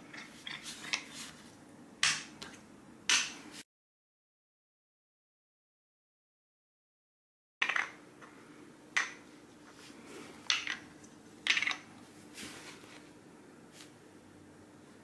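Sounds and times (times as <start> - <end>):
faint steady hum: 0.0 - 3.6, 7.6 - 15.0
plastic cups clacking on floor: 7.6 - 8.0, 9.0 - 9.2, 10.4 - 11.9.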